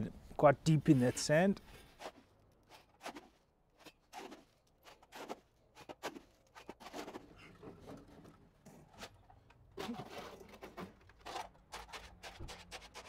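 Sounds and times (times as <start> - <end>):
spade scraping concrete: 0.8 - 7.9, 8.9 - 13.0.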